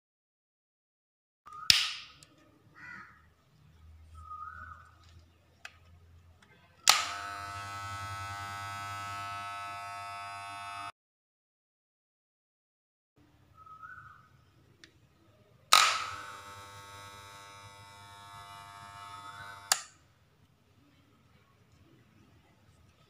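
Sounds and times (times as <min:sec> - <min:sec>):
hair clipper buzzing: 0:06.9 - 0:10.9, 0:15.7 - 0:20.0
sharp click: 0:15.7 - 0:16.2, 0:19.7 - 0:19.9.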